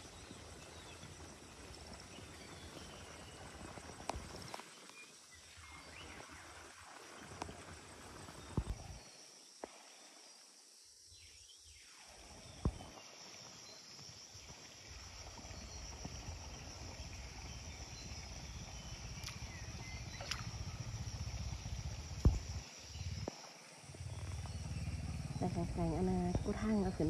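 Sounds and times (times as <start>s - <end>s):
insects chirring: 0.0s - 27.0s
low rumble: 15.9s - 23.2s.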